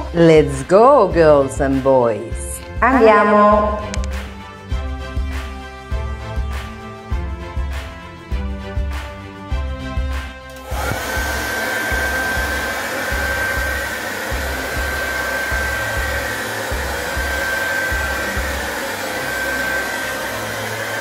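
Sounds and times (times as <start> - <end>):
hair dryer running: 1.4 - 5.4, 10.5 - 21.0.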